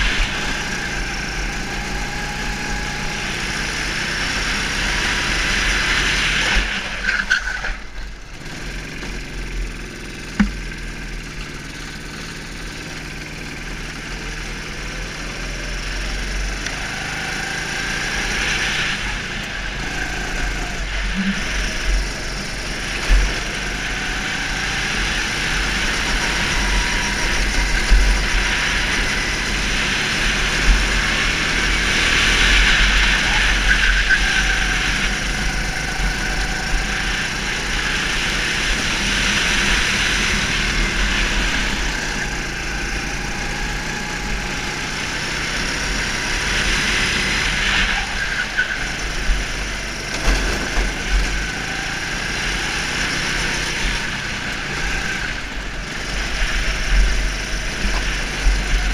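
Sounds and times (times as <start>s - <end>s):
go-kart engine running: 0.0s - 58.9s.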